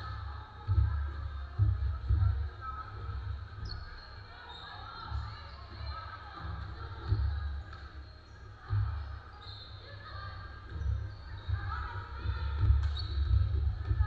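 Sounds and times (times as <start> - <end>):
voices in a large gym: 0.0 - 14.0
basketball bouncing on wooden floor: 10.7 - 14.0.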